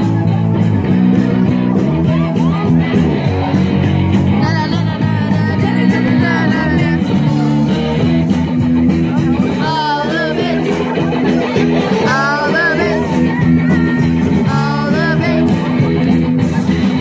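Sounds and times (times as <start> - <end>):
guitar: 0.0 - 17.0
steady bass notes: 0.0 - 17.0
person singing: 4.3 - 8.4, 9.3 - 16.0.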